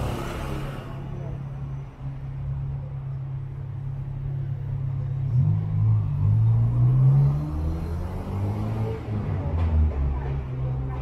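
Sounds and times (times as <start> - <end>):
vehicle engine revving: 0.0 - 1.5.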